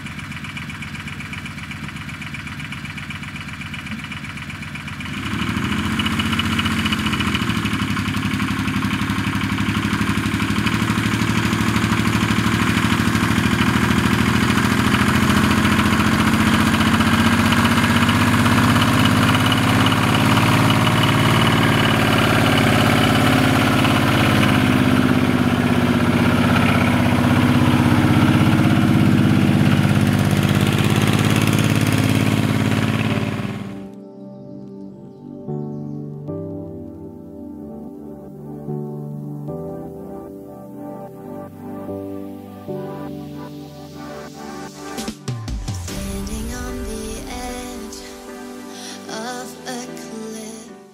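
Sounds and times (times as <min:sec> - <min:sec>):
truck engine running at low revs: 0:00.0 - 0:33.9.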